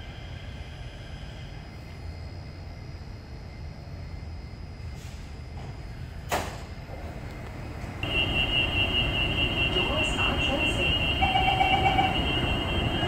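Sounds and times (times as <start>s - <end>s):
metro train rumbling: 0.0s - 13.0s.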